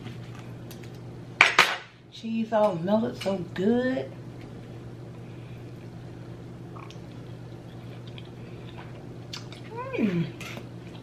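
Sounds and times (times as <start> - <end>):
steady low hum: 0.0 - 11.0
person chewing food: 6.7 - 9.7.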